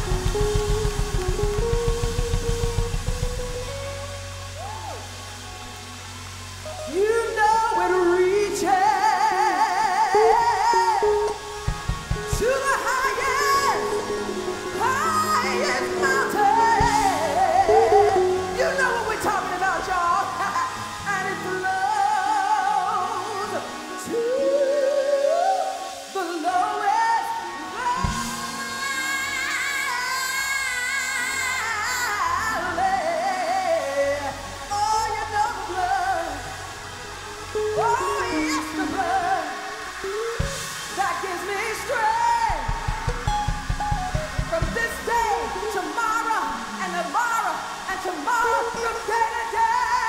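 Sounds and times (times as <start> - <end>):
live instrumental accompaniment: 0.0 - 50.0
woman singing with vibrato: 6.8 - 50.0.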